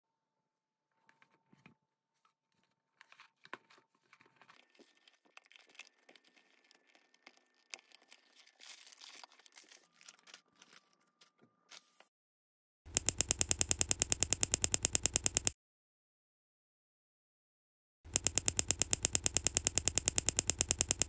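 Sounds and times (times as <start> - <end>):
tearing crinkling packaging: 3.0 - 12.0
clicks: 12.9 - 15.6, 18.1 - 21.0.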